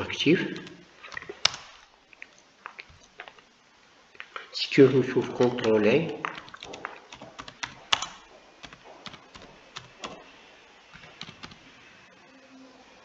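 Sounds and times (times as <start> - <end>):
computer keyboard typing: 0.4 - 1.8, 5.4 - 10.3, 11.0 - 11.7.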